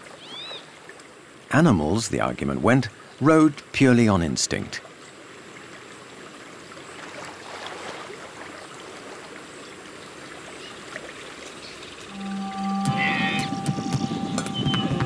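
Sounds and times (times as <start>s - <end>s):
water trickling: 4.0s - 15.0s
faint splashes: 4.8s - 12.0s
low held tone: 12.1s - 15.0s.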